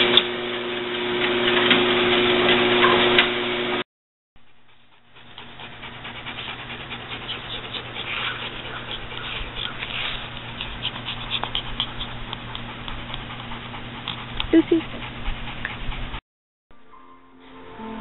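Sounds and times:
steady low hum: 4.5 - 16.2
dogs scuffling and breathing: 4.7 - 16.1.

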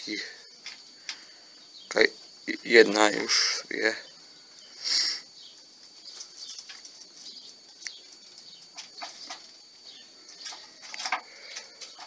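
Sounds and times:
pigeons pecking on wood: 5.8 - 12.0.

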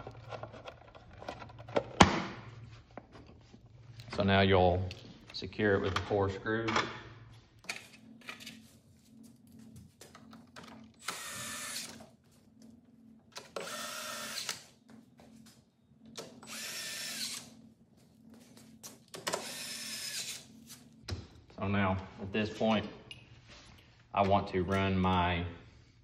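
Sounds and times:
power drill driving screws: 11.0 - 12.0, 13.5 - 14.6, 16.4 - 17.5, 19.2 - 20.5.

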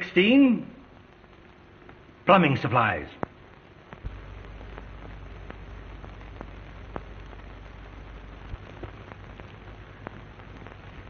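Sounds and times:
film soundtrack hiss: 0.0 - 11.0
low hum: 0.0 - 11.0
clicks and pops: 3.2 - 7.4.

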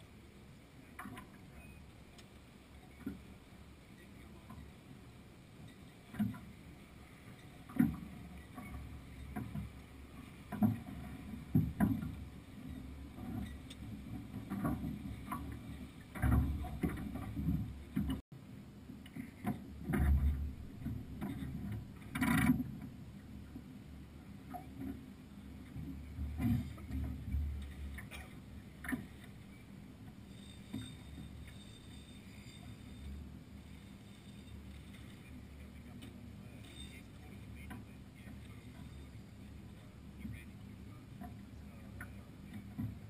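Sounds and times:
knocks and clunks from boat gear: 5.6 - 18.2, 18.9 - 23.7, 24.3 - 31.7, 41.0 - 43.0
low rumbles: 6.3 - 43.0.

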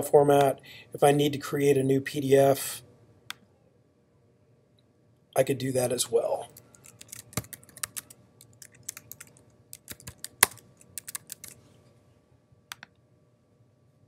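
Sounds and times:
keyboard typing: 6.5 - 11.6.

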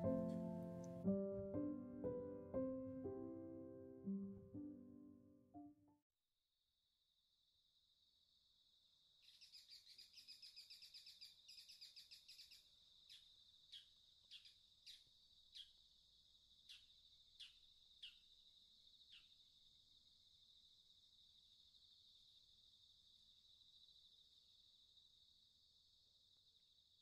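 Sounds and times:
bird chattering trill: 9.3 - 15.0.

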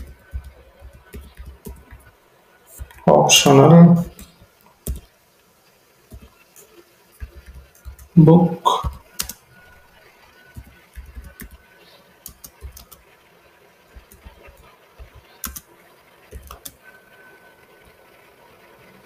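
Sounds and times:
computer keyboard keystrokes: 0.0 - 2.1, 4.2 - 5.1, 7.2 - 8.1, 8.8 - 9.4, 10.5 - 11.6, 12.2 - 13.0, 13.9 - 15.7, 16.3 - 16.8.

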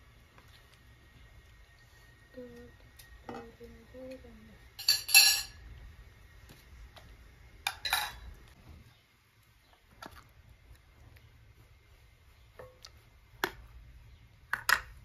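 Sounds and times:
ladle clinking on porcelain bowls: 4.8 - 5.6, 7.7 - 8.2.

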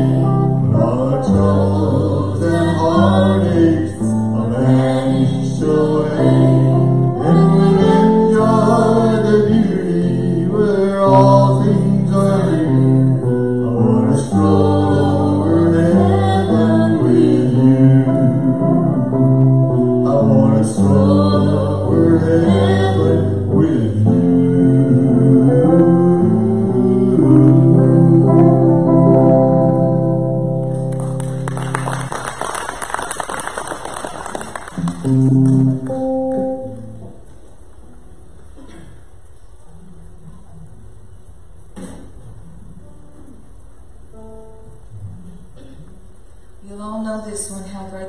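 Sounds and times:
person singing: 0.0 - 30.6
bass line: 0.0 - 31.2
electric and acoustic guitars: 0.0 - 46.6.

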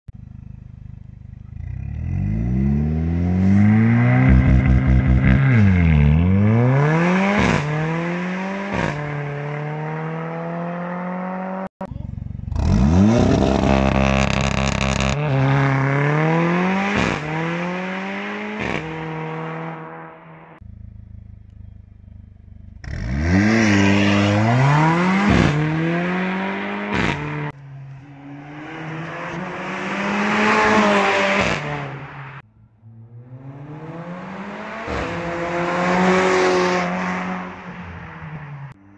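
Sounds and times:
car engine accelerating hard: 1.3 - 11.7, 28.2 - 37.7
exhaust crack on upshift: 13.4 - 15.2.

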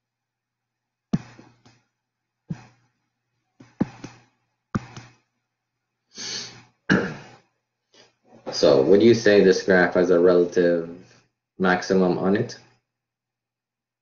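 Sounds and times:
stylus tapping on tablet screen: 1.1 - 1.9, 2.5 - 2.9, 3.6 - 5.3.

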